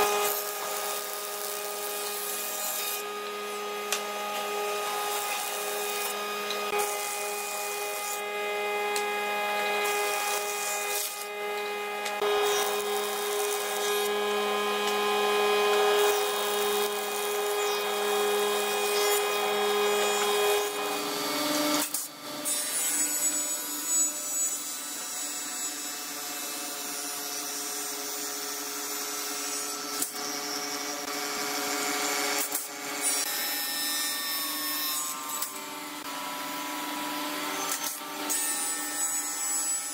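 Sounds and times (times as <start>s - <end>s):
wood planer humming: 0.0s - 21.8s.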